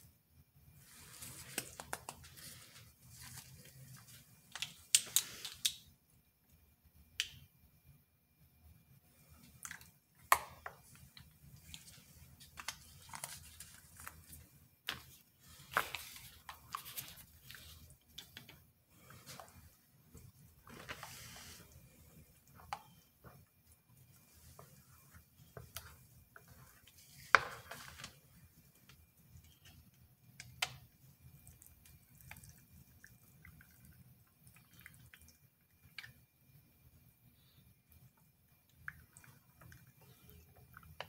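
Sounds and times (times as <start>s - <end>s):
soft rustling of gloved hands: 0.7s - 5.7s, 10.8s - 29.8s.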